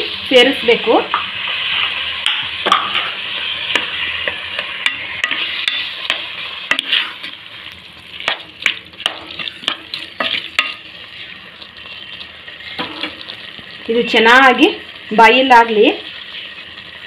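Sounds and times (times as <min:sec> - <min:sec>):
vegetables sizzling in a pot: 0:00.0 - 0:17.0
spoon scraping a pot: 0:02.8 - 0:07.4.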